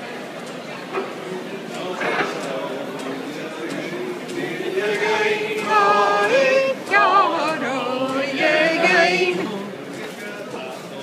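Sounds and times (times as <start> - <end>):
group singing unaccompanied: 1.0 - 11.0.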